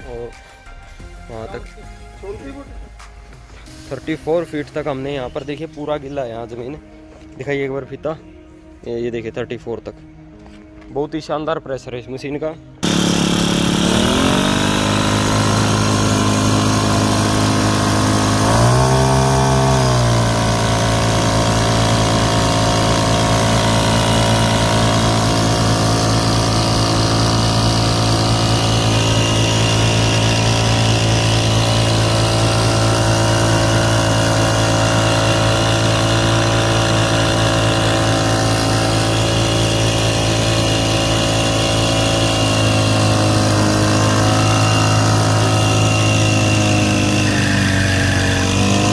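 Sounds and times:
pump spraying: 0:12.8 - 0:48.9
small petrol engine running: 0:12.8 - 0:48.9.

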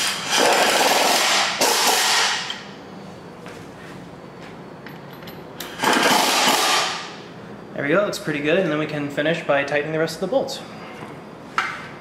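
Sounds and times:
pneumatic impact wrench bursts: 0:00.0 - 0:02.6, 0:05.7 - 0:07.1.

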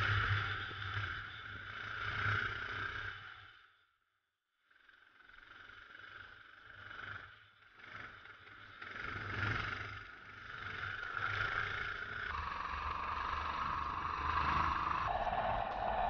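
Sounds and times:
kart engine running hard: 0:05.4 - 0:15.1.

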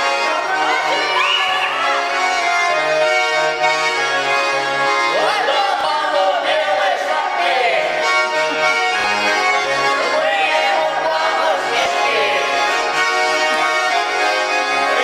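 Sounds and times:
button accordion folk dance tune: 0:00.0 - 0:15.0.

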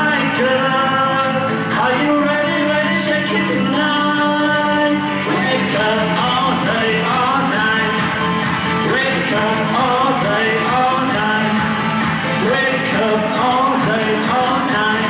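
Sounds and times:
background music with steady beat: 0:00.0 - 0:15.0.

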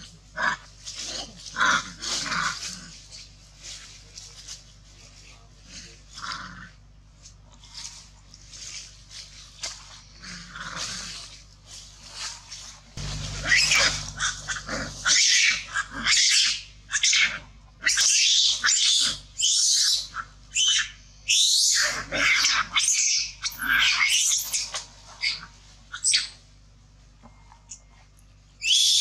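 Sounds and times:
monkeys screaming: 0:13.1 - 0:26.4, 0:28.6 - 0:29.0.

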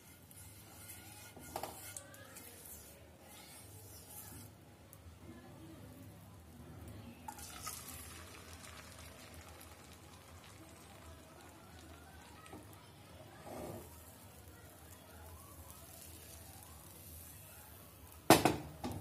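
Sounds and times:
batter sizzling in frying pan: 0:07.3 - 0:19.0.

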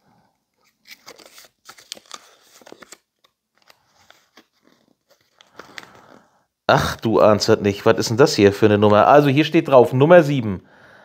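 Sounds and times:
paper crinkling: 0:00.5 - 0:06.2.

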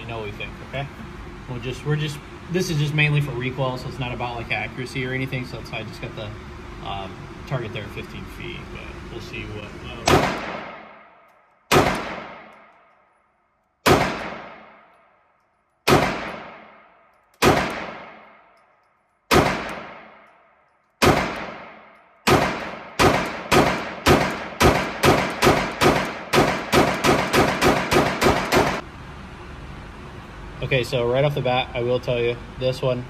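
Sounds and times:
pistol shots echoing: 0:10.0 - 0:13.1, 0:13.8 - 0:15.2, 0:15.8 - 0:18.6, 0:19.3 - 0:28.8.

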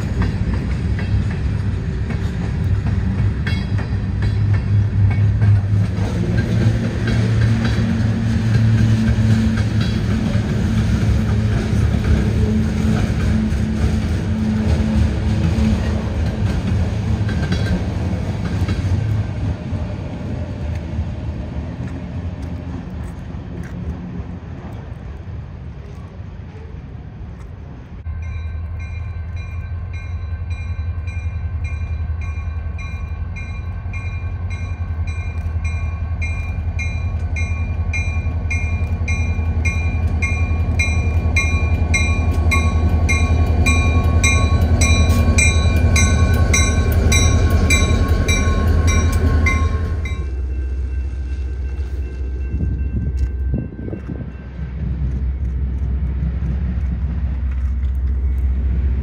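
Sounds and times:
diesel locomotives rumbling: 0:00.0 - 0:59.0
locomotive bell ringing: 0:28.0 - 0:55.0.

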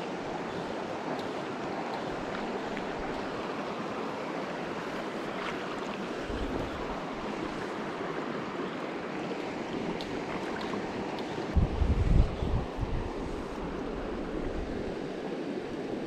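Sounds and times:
creek flowing over cobbles: 0:00.0 - 0:11.6.

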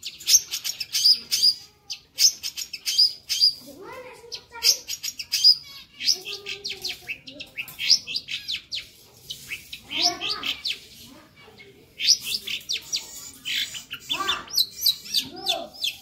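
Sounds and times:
shrike singing: 0:04.2 - 0:16.0.

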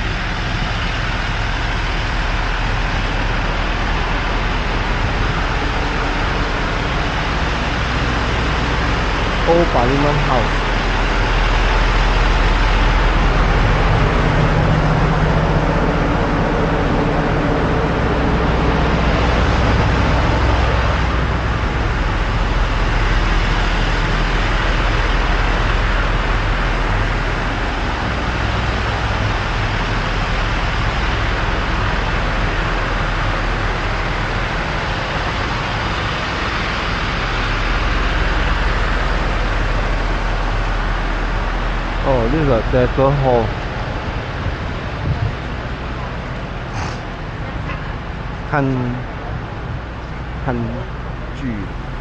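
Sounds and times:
low engine hum: 0:00.0 - 0:52.0
roar of passing vehicles: 0:43.9 - 0:50.5.

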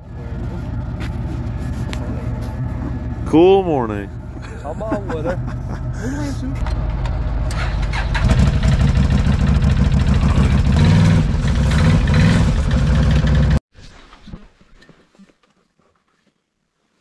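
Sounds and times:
atv engine revving: 0:05.3 - 0:13.6.

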